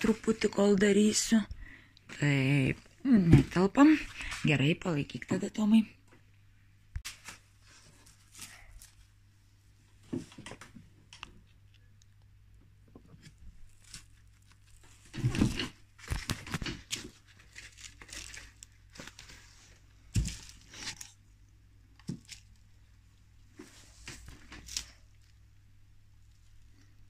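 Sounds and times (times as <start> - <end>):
bubble wrap rustling: 7.0 - 9.3, 13.2 - 21.4, 23.5 - 25.5.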